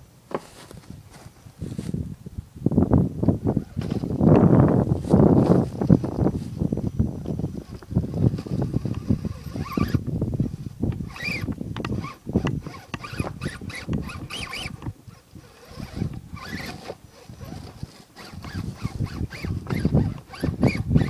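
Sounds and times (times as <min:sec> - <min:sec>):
wind buffeting microphone: 0:00.6 - 0:21.0.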